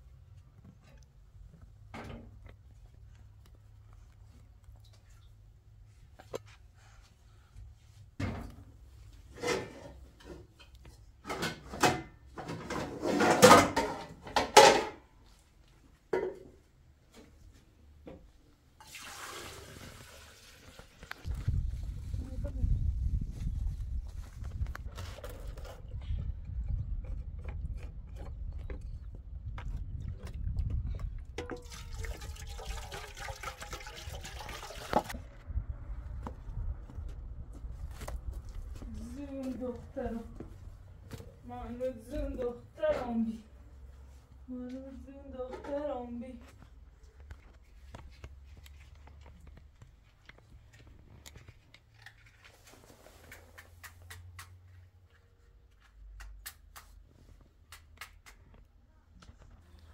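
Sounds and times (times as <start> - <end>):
water pouring into metal pot: 18.8 - 21.0, 31.4 - 35.2.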